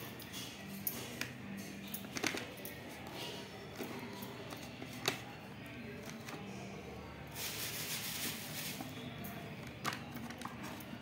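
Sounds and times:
rustling handling noise: 0:07.3 - 0:11.0.

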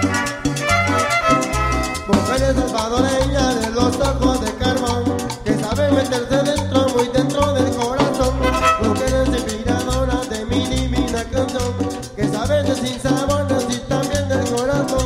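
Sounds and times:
latin dance band playing: 0:00.0 - 0:15.0.

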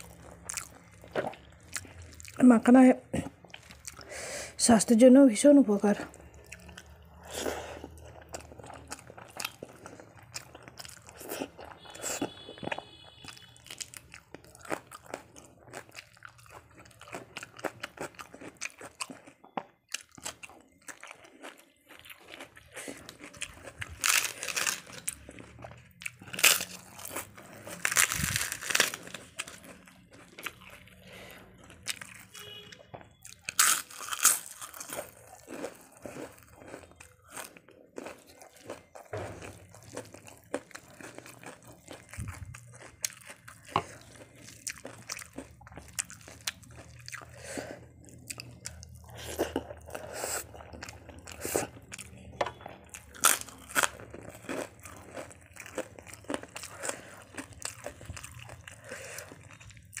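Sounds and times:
crisp papad crunching: 0:26.4 - 0:29.6.

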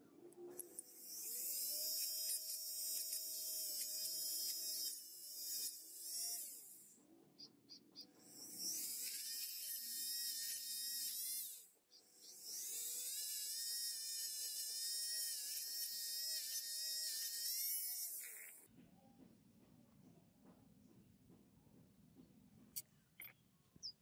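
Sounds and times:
rotary tool whining on steel: 0:00.3 - 0:18.7.

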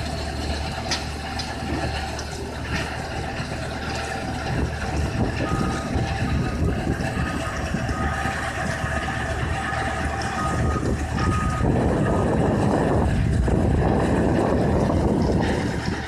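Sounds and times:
diesel engine and conveyors droning: 0:00.0 - 0:16.0
reversing alarm beeps: 0:05.3 - 0:12.5.

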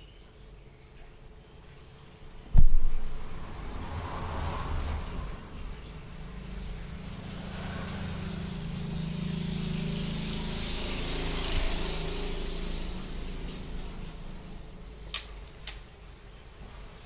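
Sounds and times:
vehicle engine passing by: 0:02.6 - 0:15.5.

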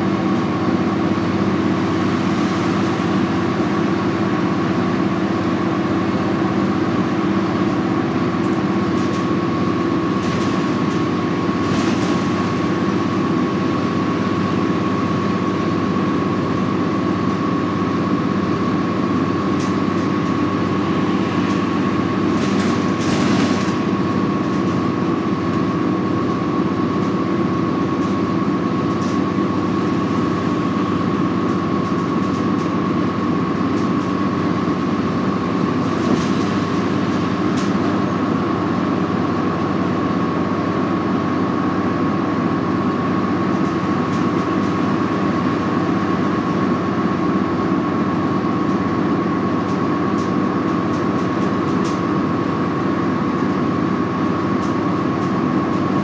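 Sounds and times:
bus diesel engine running: 0:00.0 - 0:56.0
road and tyre noise: 0:00.0 - 0:56.0
steady high whine: 0:18.3 - 0:25.4.

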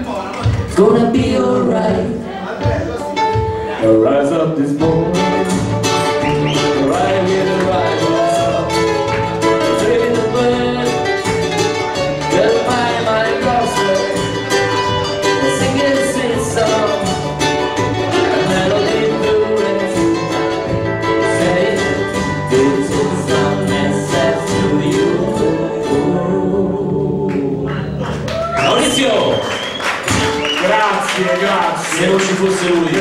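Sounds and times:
ukulele bass: 0:00.0 - 0:29.2, 0:29.9 - 0:30.6
strummed ukuleles: 0:00.0 - 0:33.0
person singing: 0:00.7 - 0:02.5, 0:03.2 - 0:28.3
foot drum: 0:30.0 - 0:30.4.

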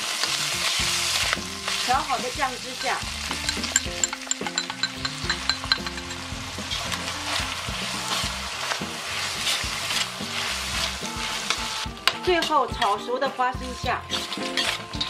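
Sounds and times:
spatula scraping a wok: 0:00.0 - 0:13.2, 0:13.9 - 0:15.0
chicken sizzling in hot oil: 0:00.0 - 0:15.0
sauce pouring: 0:02.8 - 0:12.0.

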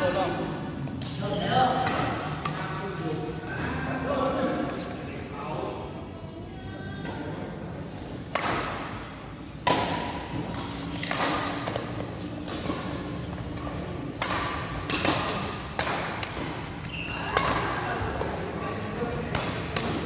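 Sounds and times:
rackets striking shuttlecock: 0:01.0 - 0:02.7, 0:08.2 - 0:18.4, 0:19.1 - 0:20.0.

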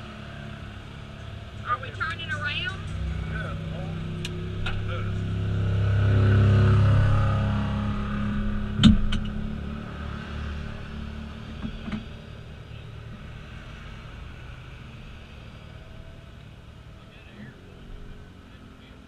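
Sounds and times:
atv engine running: 0:00.0 - 0:19.0
sharp knocks: 0:08.8 - 0:09.4.

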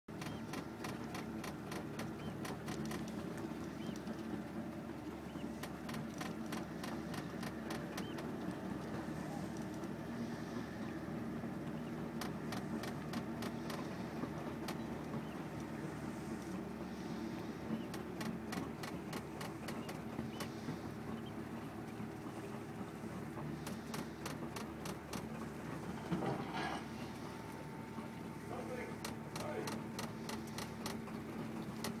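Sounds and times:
faint clicks and ticks: 0:00.2 - 0:04.3, 0:05.5 - 0:10.0, 0:12.1 - 0:15.7, 0:17.8 - 0:22.0, 0:23.4 - 0:25.4, 0:28.6 - 0:32.0.

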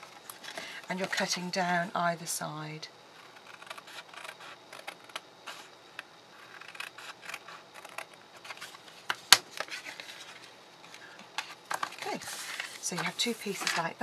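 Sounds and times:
card rustling: 0:08.4 - 0:14.0.

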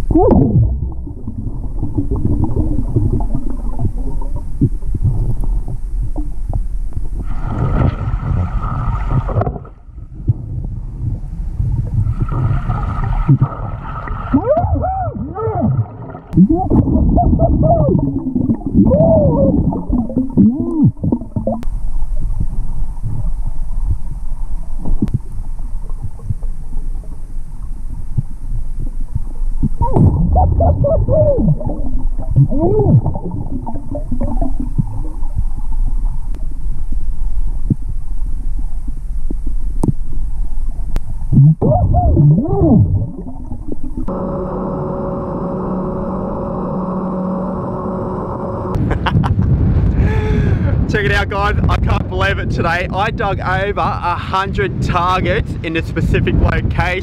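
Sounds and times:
underwater bubbles and rumble: 0:00.0 - 0:57.0
muffled voice through regulator: 0:50.9 - 0:57.0.

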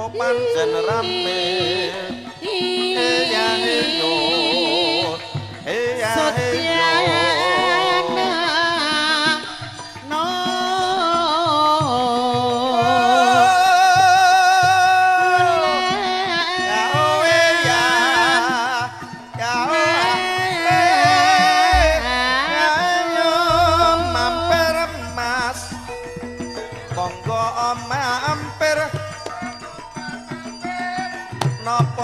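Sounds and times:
woman singing through microphone: 0:00.0 - 0:25.8
regular drum beats: 0:16.1 - 0:32.0
gamelan accompaniment: 0:16.6 - 0:32.0.

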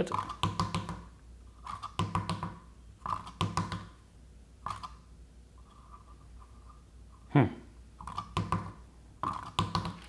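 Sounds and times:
ball and plastic tube tapping: 0:00.0 - 0:01.1, 0:01.8 - 0:04.0, 0:08.0 - 0:10.0.

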